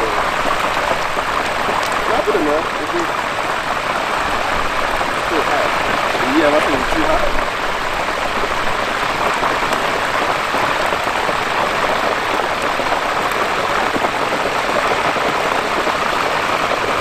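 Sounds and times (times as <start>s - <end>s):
hot oil sizzling and bubbling: 0.0s - 17.0s.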